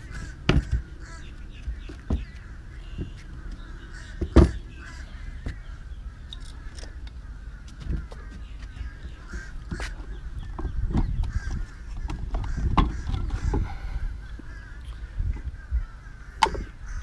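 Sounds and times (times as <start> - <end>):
plastic knocks and clunks: 0.5 - 0.8, 4.2 - 4.6, 10.5 - 13.6.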